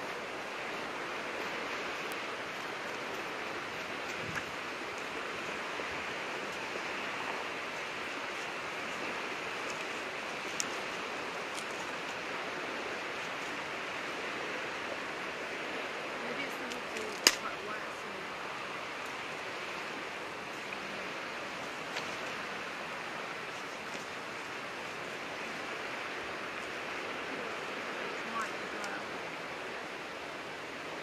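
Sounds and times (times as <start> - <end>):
sea surf rushing: 0.0 - 31.0
faint ticks: 9.6 - 12.2.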